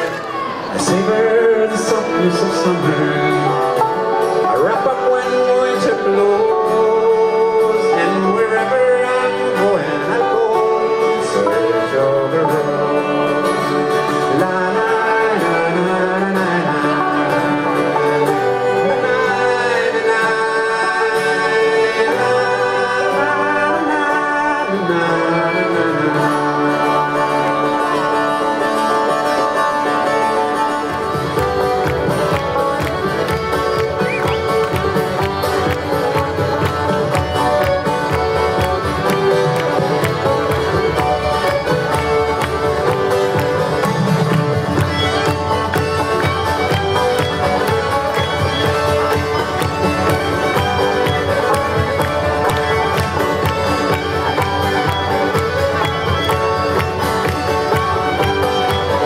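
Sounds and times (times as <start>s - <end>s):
acoustic guitar and strings: 0.0s - 59.0s
man singing: 0.7s - 30.6s.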